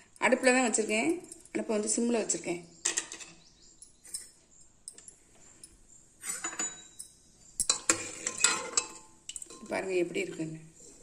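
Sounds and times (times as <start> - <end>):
metal utensil clinking on pot: 6.2 - 10.2.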